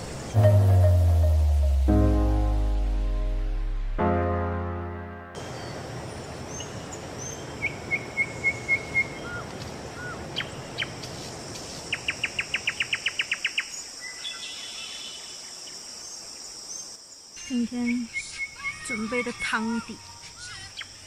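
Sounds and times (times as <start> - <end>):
insects droning: 5.4 - 21.0.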